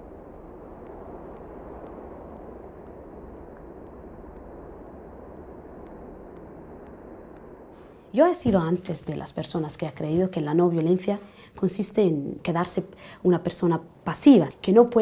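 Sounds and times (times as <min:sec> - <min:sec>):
steady rushing noise: 0:00.0 - 0:09.1.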